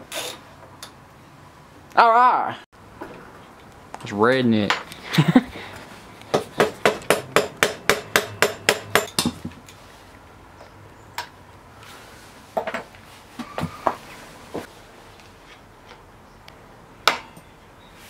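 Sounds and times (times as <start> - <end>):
tool striking metal axle: 6.3 - 9.5.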